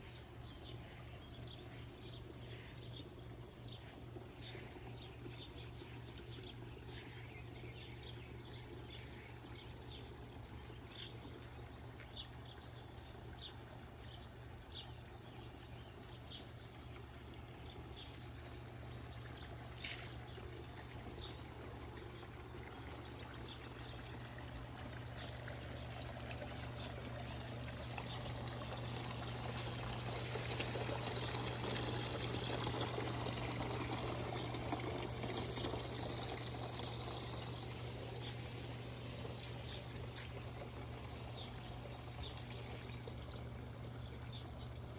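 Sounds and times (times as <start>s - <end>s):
birds chirping: 0.0s - 29.9s
fountain water trickling and splashing: 0.0s - 44.9s
steady low hum: 0.0s - 44.9s.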